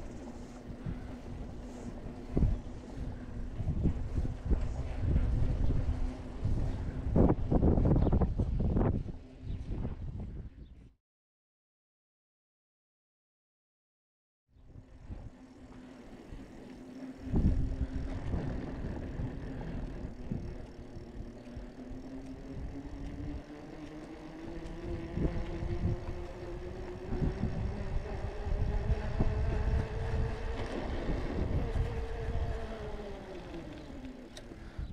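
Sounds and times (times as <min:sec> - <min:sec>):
wind buffeting microphone: 0:00.0 - 0:10.9, 0:14.6 - 0:34.9
steady rising hum: 0:14.6 - 0:34.8.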